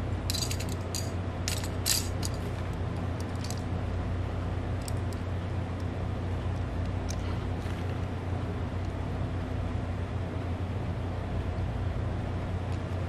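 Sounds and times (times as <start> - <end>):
steady low hum: 0.0 - 13.0
plastic parts clicking and clattering: 0.3 - 2.6, 3.2 - 3.6.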